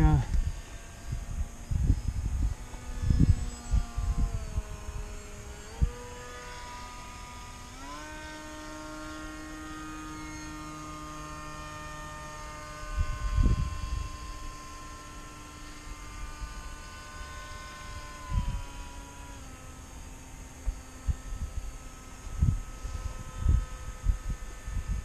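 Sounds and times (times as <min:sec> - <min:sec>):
wind buffeting microphone: 0:00.0 - 0:07.4, 0:10.9 - 0:15.1, 0:18.1 - 0:19.3, 0:20.6 - 0:25.0
electric motor and propeller hum: 0:00.0 - 0:25.0.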